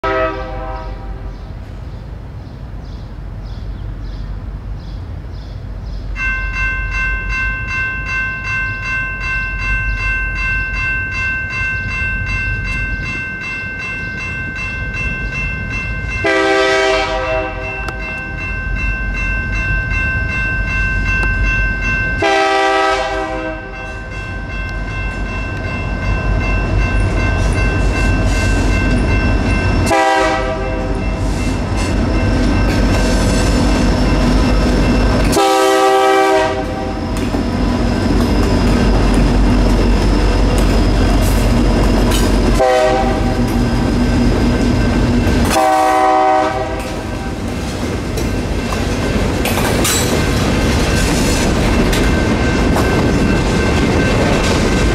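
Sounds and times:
locomotive air horn blasts: 0.0 - 1.3, 16.2 - 18.1, 22.2 - 24.1, 29.9 - 31.2, 35.3 - 37.0, 42.6 - 43.6, 45.5 - 47.3
low rumble of train: 0.0 - 54.9
railroad crossing bells ringing: 5.8 - 54.9.

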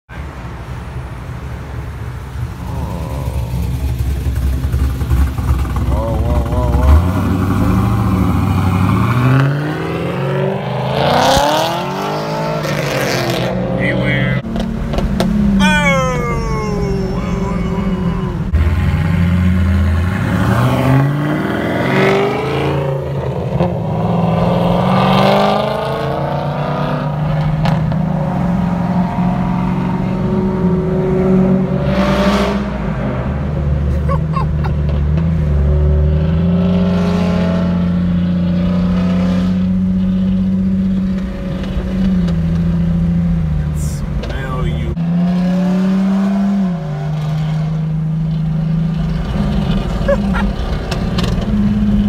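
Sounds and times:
car engine revving: 2.5 - 15.6, 17.0 - 33.9.

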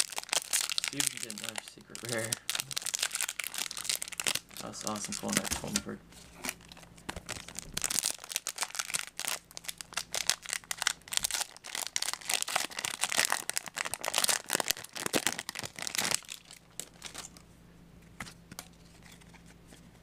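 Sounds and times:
foil wrapper crinkling and tearing: 0.0 - 17.4.

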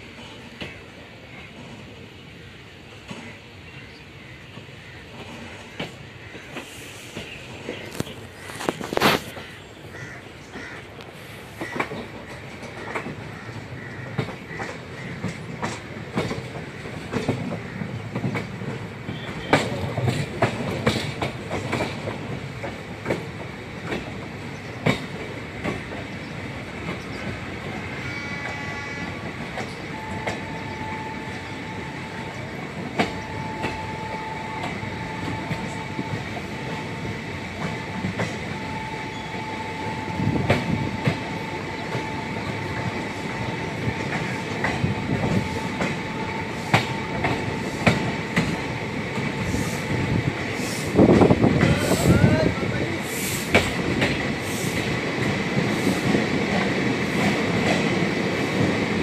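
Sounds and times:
train wheels clicking over rail joints: 4.4 - 52.3, 53.0 - 59.0
wheels squealing against rail: 26.9 - 48.8, 49.4 - 53.7.

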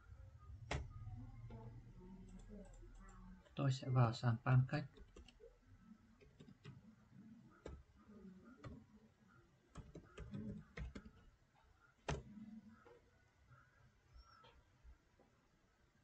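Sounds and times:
computer keyboard typing: 0.6 - 3.6, 4.8 - 9.0, 9.7 - 11.3.

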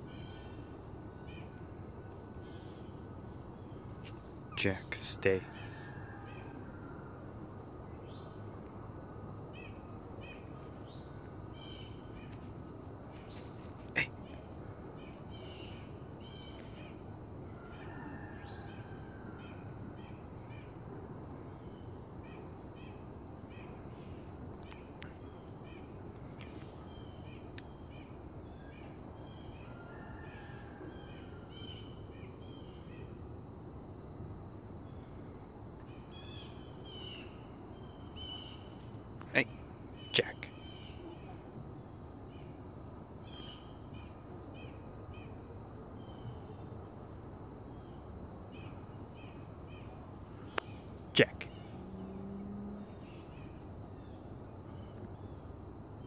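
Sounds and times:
low background hiss: 0.0 - 56.0
bird chirps: 34.9 - 41.4
falling bird calls: 34.9 - 47.2.

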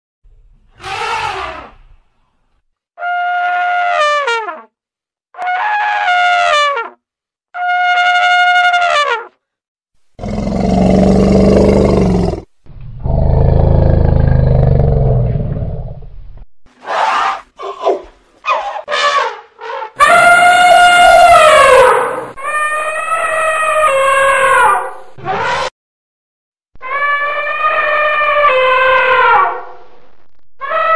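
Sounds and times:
elephant trumpeting: 0.8 - 1.8, 16.8 - 25.7, 26.8 - 29.7
elephant trumpeting squeals: 0.8 - 1.8, 16.8 - 25.7, 26.8 - 29.6
elephant low roars: 10.2 - 16.2.

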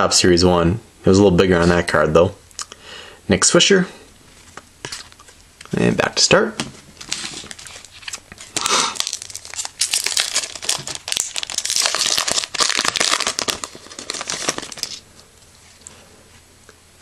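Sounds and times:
foil wrapper tearing and crinkling: 7.1 - 15.0.

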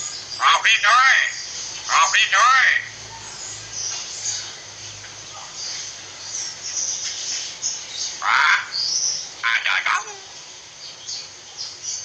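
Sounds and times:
harsh bird call: 0.0 - 3.0, 8.1 - 10.4
myna bird chirping: 0.0 - 12.0.

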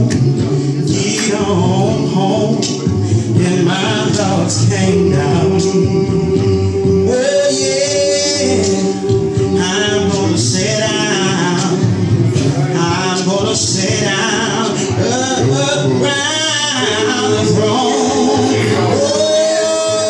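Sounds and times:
men's gospel chorus singing: 0.0 - 20.0.

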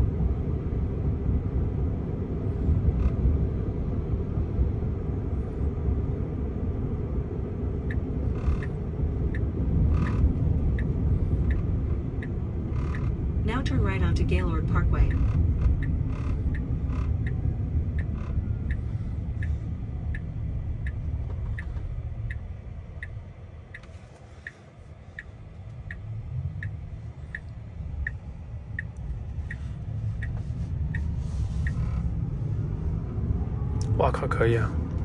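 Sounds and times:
road rumble inside car: 0.0 - 35.0
turn signal ticking: 0.1 - 35.0.

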